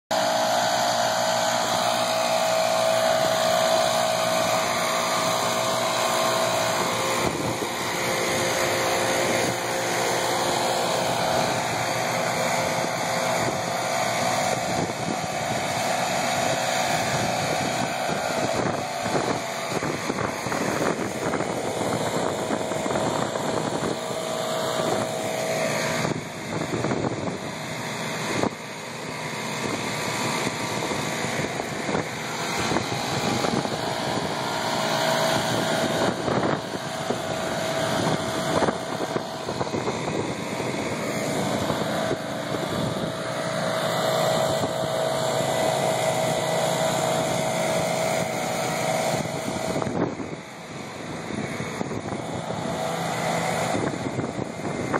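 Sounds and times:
leaf blower engines droning: 0:00.0 - 0:54.9
high hum: 0:00.1 - 0:54.9.

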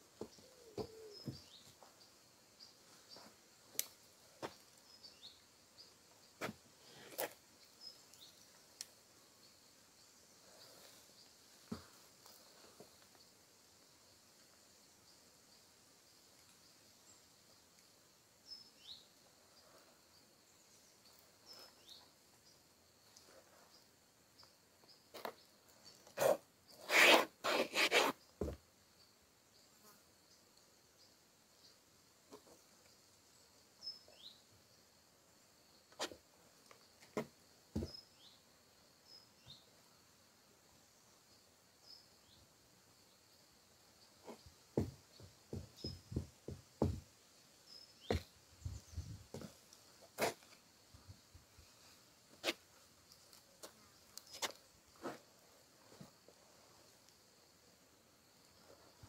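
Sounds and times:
faint steady high hiss: 0:00.0 - 0:59.0
small bird chirping: 0:00.2 - 0:03.4, 0:29.0 - 0:34.5, 0:44.0 - 0:47.0, 0:47.6 - 0:49.6
soft knocks: 0:44.8 - 0:47.0.

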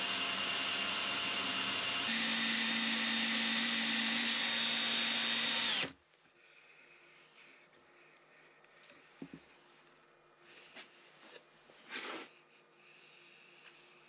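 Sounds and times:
drill motor spinning dowel: 0:00.0 - 0:06.0.

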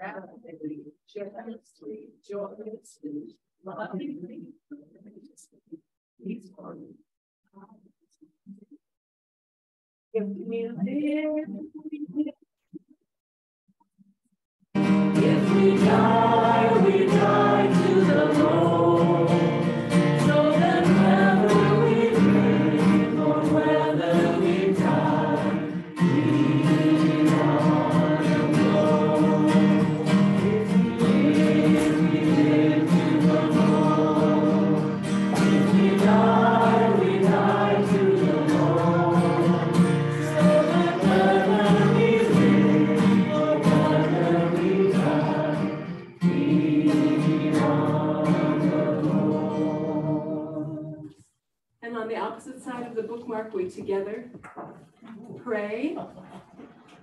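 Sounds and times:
congregation singing a hymn: 0:14.8 - 0:51.1.

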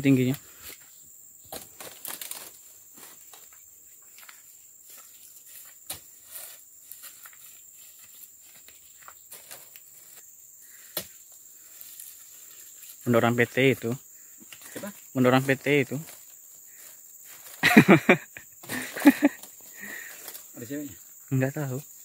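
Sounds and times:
high-pitched insect drone: 0:00.0 - 0:22.0
footsteps in undergrowth: 0:00.4 - 0:17.9
handling noises: 0:01.5 - 0:04.4.

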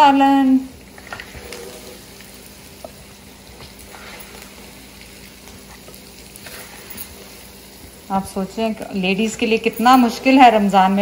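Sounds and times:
hot oil sizzling: 0:00.0 - 0:11.0
low steady hum: 0:00.0 - 0:11.0.

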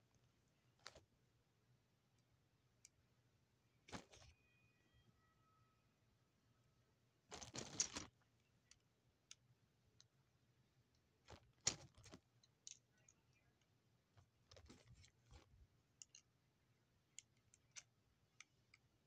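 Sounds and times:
plastic bricks clicking: 0:16.0 - 0:16.3.

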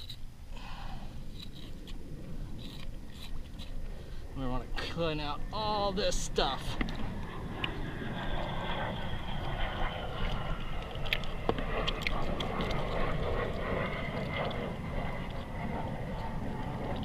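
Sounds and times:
wind buffeting microphone: 0:01.1 - 0:17.0
wet clicks and squelches: 0:09.4 - 0:17.0.

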